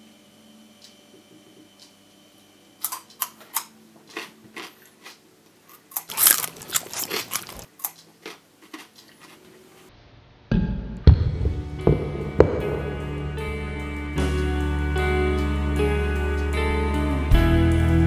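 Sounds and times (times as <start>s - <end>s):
carrot crunching: 2.8s - 9.6s
music: 10.5s - 18.0s.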